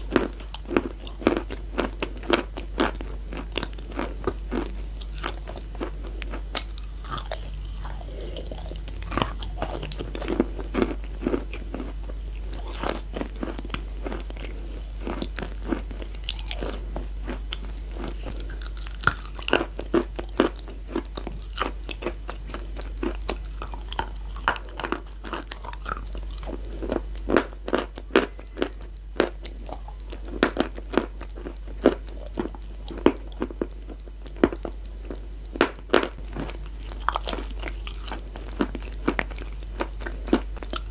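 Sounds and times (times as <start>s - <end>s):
crunching and chewing chalk: 0.0s - 40.9s.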